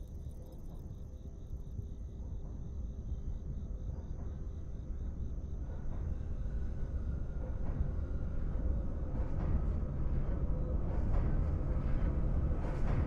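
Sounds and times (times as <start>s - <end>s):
crickets chirping: 0.0s - 5.6s.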